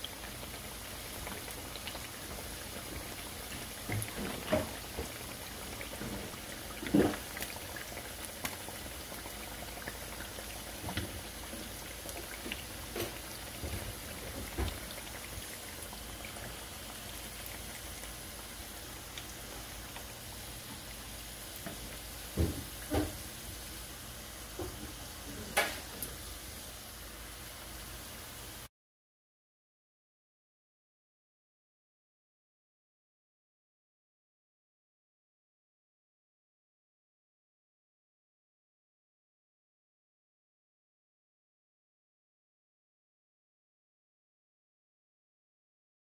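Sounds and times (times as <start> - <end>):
fish deep frying in oil: 0.0 - 28.7.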